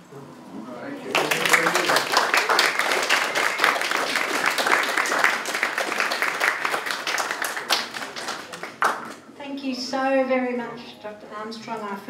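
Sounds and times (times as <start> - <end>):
audience applauding: 1.1 - 9.2.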